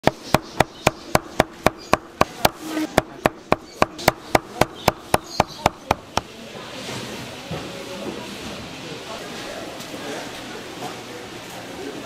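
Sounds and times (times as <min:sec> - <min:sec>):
knife chopping on wooden board: 0:00.0 - 0:06.3.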